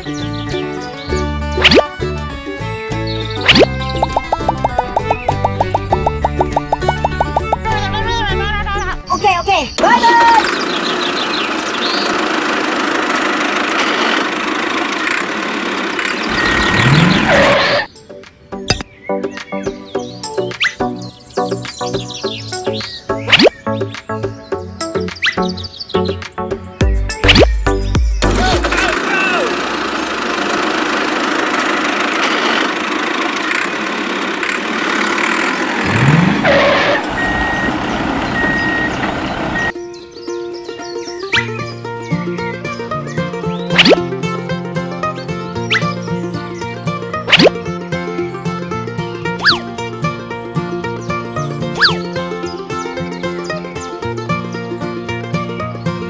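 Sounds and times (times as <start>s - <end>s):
toy tractor engine clattering: 9.8s - 17.3s, 28.4s - 39.7s.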